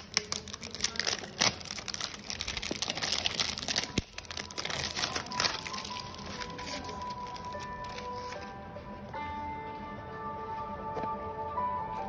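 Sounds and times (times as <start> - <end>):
plastic shrink-wrap crinkling and tearing: 0.0 - 8.5.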